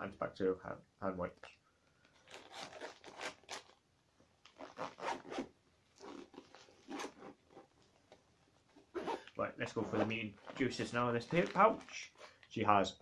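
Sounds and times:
zip being pulled: 4.6 - 7.7, 8.9 - 10.6.

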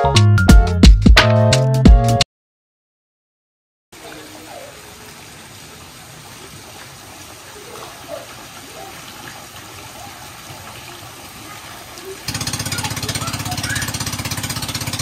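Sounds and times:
fountain water splashing: 4.0 - 15.0.

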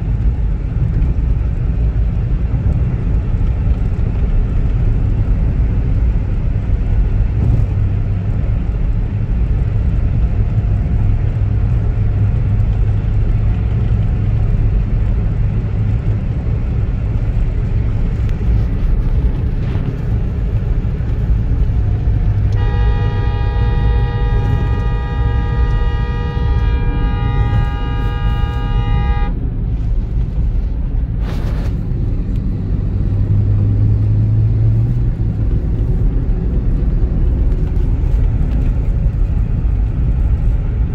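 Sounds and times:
road and engine rumble in car: 0.0 - 40.9
vehicle horn: 22.4 - 29.5.

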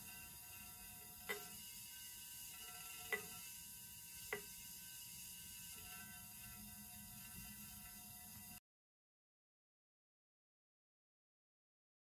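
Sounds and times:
faint steady hiss: 0.0 - 8.6
thin tones: 0.0 - 8.6.

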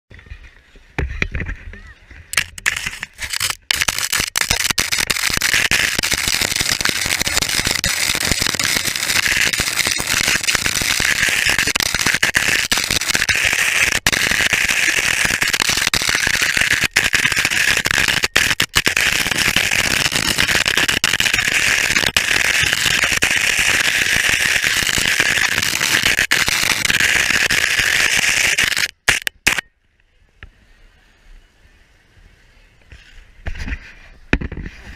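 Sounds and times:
camera scraping on ice: 2.3 - 27.8.

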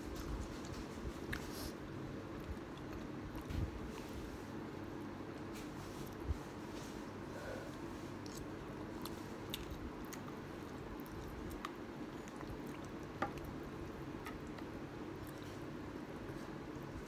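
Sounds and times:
steady low hum: 0.0 - 17.0
wet chewing: 8.1 - 15.7.

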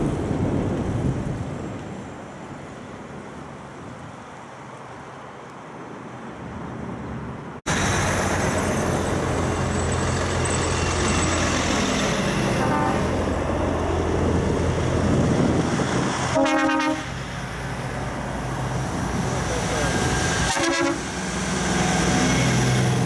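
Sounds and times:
trucks driving past: 0.0 - 23.0
truck horn blast: 12.5 - 13.2, 16.3 - 17.2, 20.5 - 21.1.

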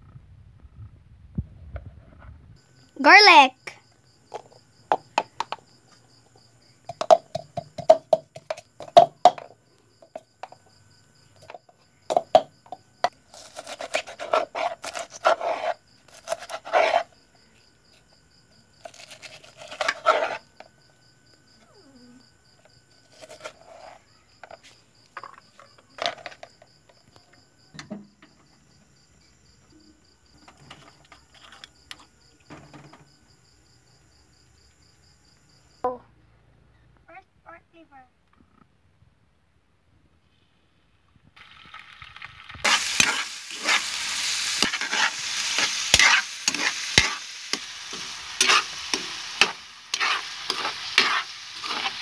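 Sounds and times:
pestle pounding in a mortar: 6.9 - 9.5.

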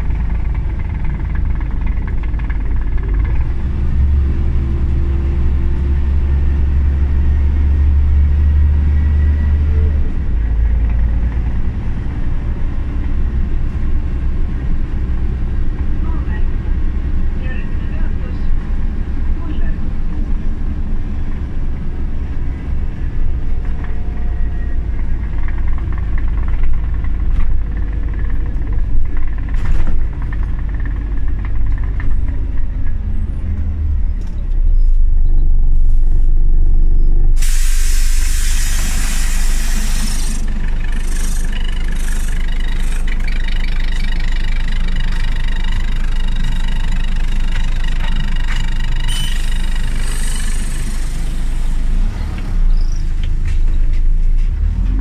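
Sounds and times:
bus engine and road rumble: 0.0 - 55.0
air hiss: 37.4 - 42.3.

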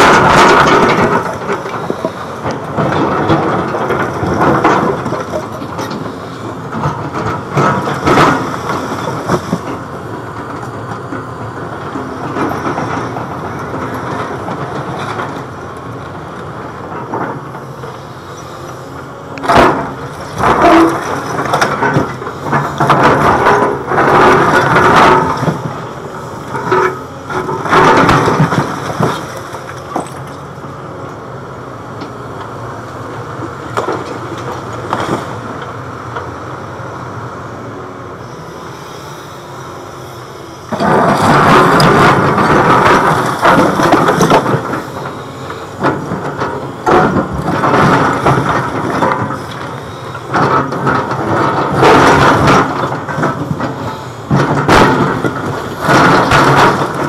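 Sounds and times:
excavator running: 0.0 - 57.0
concrete slabs clattering: 40.7 - 57.0.

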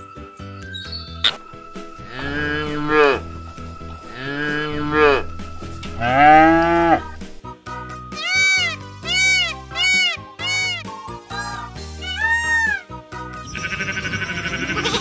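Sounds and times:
background music: 0.0 - 15.0
cows mooing: 1.7 - 7.4.

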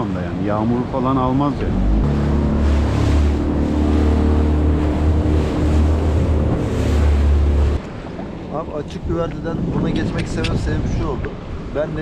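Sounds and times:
water rushing past hull: 0.0 - 12.0
outboard motor running: 0.3 - 8.5
wind buffeting microphone: 1.7 - 12.0.

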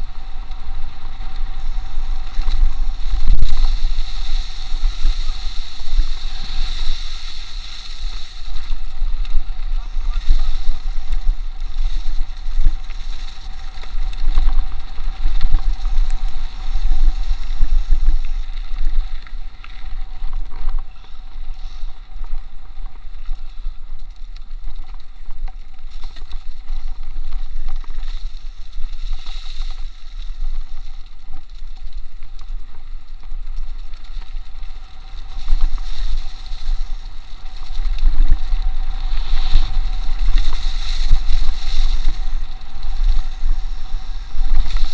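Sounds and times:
wind buffeting microphone: 0.0 - 23.0, 34.2 - 44.9.

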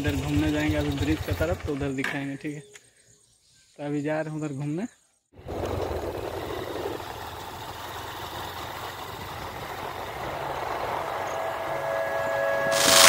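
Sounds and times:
motorcycle engine running: 0.0 - 2.1, 5.4 - 13.0.

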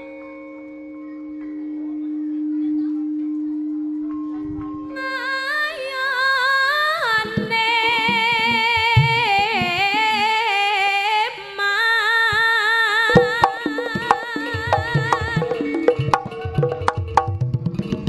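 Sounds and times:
woman singing with vibrato: 4.9 - 16.2
sharp drum strokes: 13.1 - 18.0.

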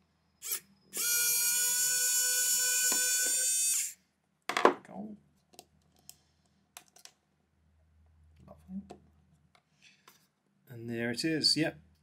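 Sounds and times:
electric screwdriver whirring: 0.4 - 4.0.

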